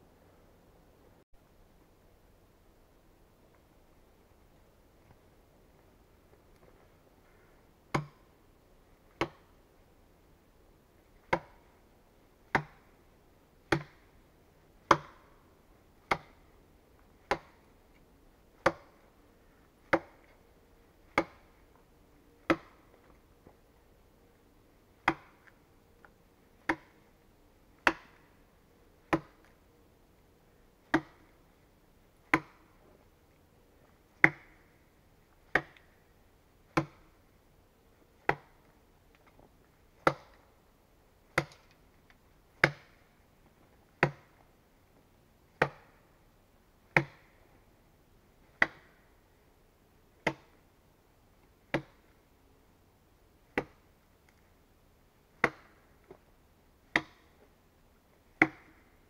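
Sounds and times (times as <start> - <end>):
axe chopping into log: 7.9 - 8.3, 9.2 - 9.5, 11.2 - 11.6, 12.5 - 12.9, 13.7 - 14.0, 14.9 - 15.3, 16.1 - 16.4, 17.2 - 17.6, 18.6 - 19.0, 19.8 - 20.3, 21.1 - 21.5, 22.5 - 22.8, 25.0 - 25.4, 26.6 - 27.0, 27.8 - 28.3, 29.1 - 29.5, 30.9 - 31.3, 32.3 - 32.7, 34.2 - 34.6, 35.5 - 35.9, 36.8 - 37.1, 38.3 - 38.6, 40.0 - 40.4, 41.4 - 41.7, 42.6 - 43.0, 44.0 - 44.3, 45.6 - 46.0, 47.0 - 47.4, 48.6 - 49.0, 50.2 - 50.5, 51.7 - 52.0, 53.6 - 53.8, 55.4 - 55.8, 56.9 - 57.2, 58.4 - 58.8.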